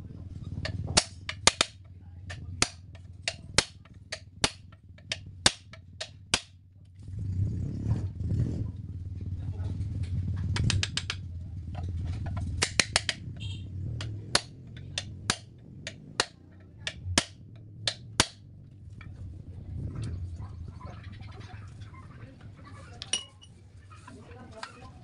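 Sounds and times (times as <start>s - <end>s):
hammer tapping metal rivets: 0.6s - 6.5s, 11.8s - 13.2s, 23.0s - 23.4s.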